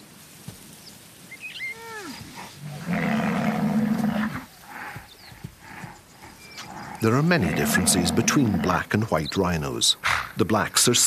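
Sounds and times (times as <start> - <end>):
rhinoceros low call: 1.6 - 8.8.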